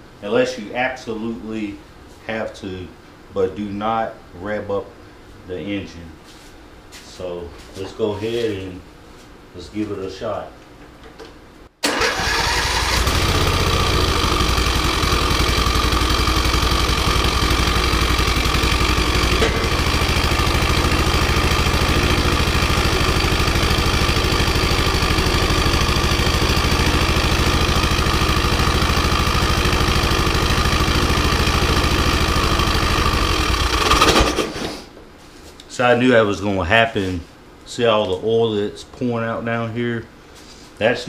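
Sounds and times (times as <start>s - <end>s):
riding mower engine running: 11.8s - 34.6s.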